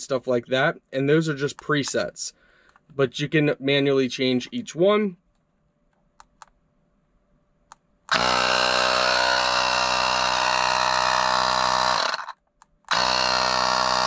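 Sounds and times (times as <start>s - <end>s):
compressor motor humming: 8.1s - 12.3s, 12.9s - 14.0s.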